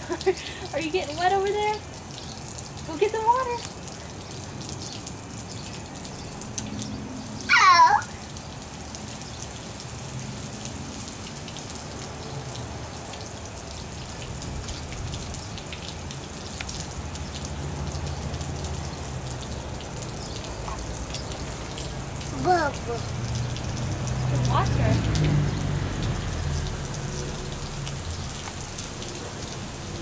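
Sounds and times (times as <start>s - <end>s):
sprinkler water pattering on concrete: 0.0s - 30.0s
high squeal falling in pitch: 7.5s - 8.1s.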